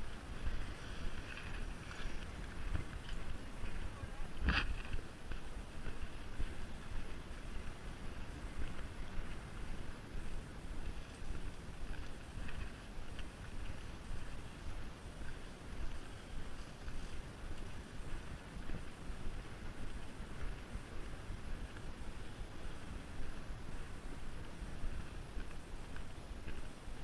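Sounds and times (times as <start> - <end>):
faint light ticks: 10.8 - 27.0.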